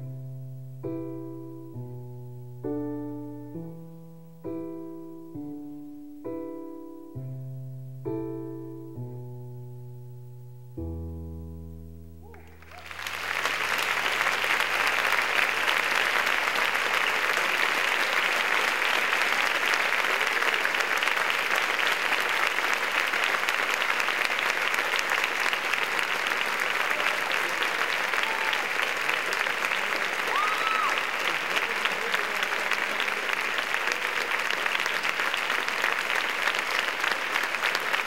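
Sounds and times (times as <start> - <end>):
audience applause: 12.3 - 38.0.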